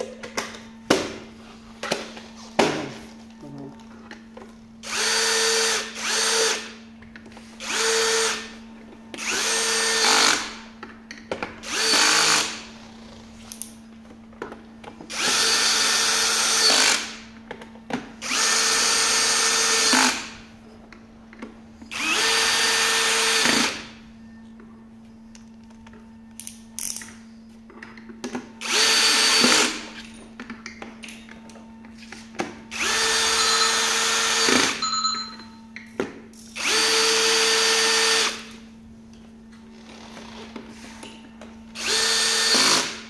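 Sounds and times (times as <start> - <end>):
cordless drill motor whine: 4.8 - 6.7, 7.6 - 8.5, 9.2 - 10.4, 11.6 - 12.6, 15.1 - 17.1, 18.2 - 20.2, 21.9 - 23.8, 28.6 - 29.7, 32.7 - 34.9, 36.6 - 38.5, 41.8 - 43.0.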